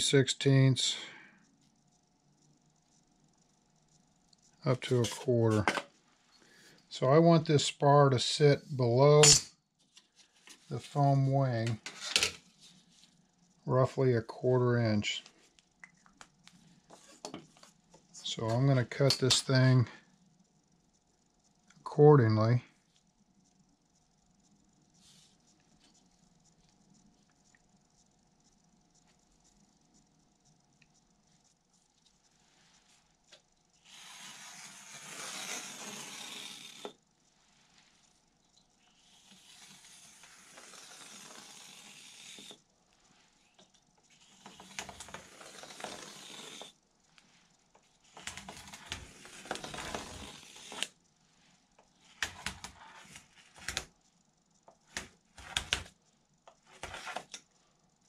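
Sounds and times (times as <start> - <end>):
blade cutting wood along ruler: 33.9 - 36.9, 39.1 - 42.6, 44.3 - 46.7, 48.2 - 50.9.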